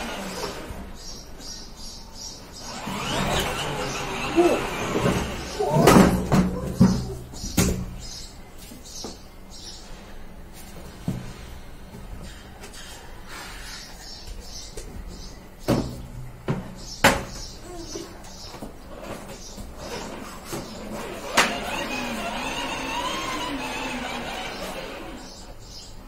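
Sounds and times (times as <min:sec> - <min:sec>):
faint steady background noise: 0:00.0 - 0:26.0.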